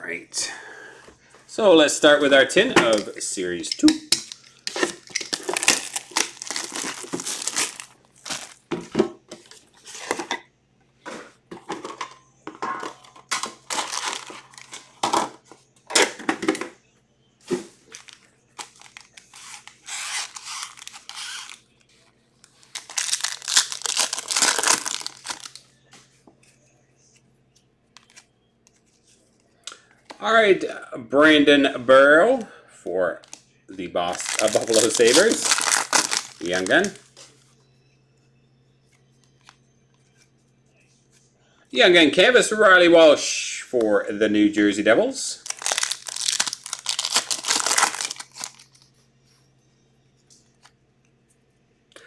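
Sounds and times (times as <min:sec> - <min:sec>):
cards rustling and shuffling: 0:04.3 - 0:08.6, 0:17.9 - 0:26.1, 0:34.1 - 0:37.3, 0:45.5 - 0:48.9
foil packs tearing and crinkling: 0:04.8 - 0:08.6, 0:13.3 - 0:14.8, 0:17.9 - 0:21.6, 0:22.6 - 0:25.6, 0:34.1 - 0:37.0, 0:45.4 - 0:48.7.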